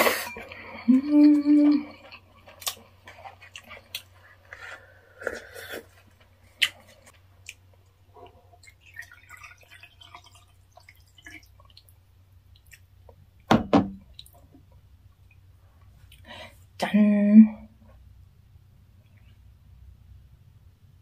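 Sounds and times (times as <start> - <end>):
wet chewing sounds: 1.5 - 12.9
liquid gurgling into glass: 8.6 - 11.7.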